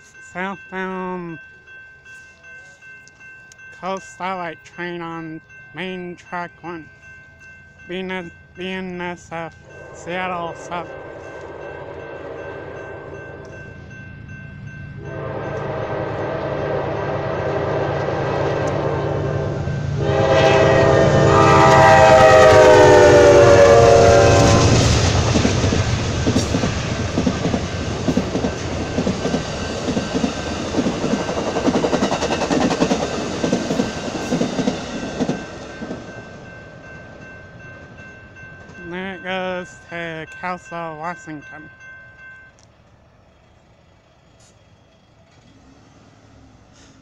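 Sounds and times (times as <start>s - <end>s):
locomotive air horn blasts: 15.0s - 24.8s
train wheels clicking on rails: 21.7s - 36.4s
locomotive engine rumble: 42.7s - 47.0s.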